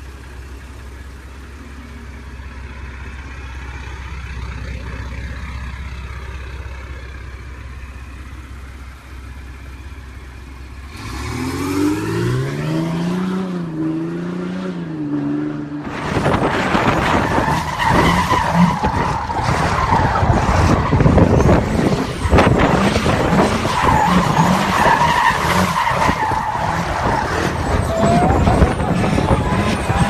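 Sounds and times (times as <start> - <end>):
diesel engine revving: 0.0 - 30.0
truck engine at high revs: 0.0 - 30.0
tyres squealing spinning donuts: 16.0 - 30.0.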